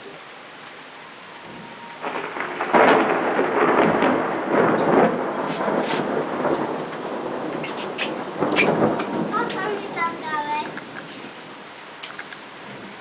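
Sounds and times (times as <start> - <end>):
steady rain falling: 0.0 - 13.0
rolling thunder: 1.4 - 11.6.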